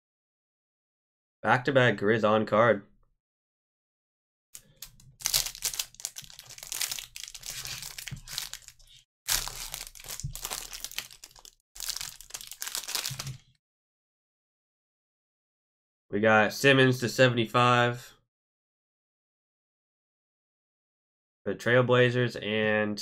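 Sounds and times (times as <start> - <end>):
plastic wrapper crinkling: 4.6 - 13.6.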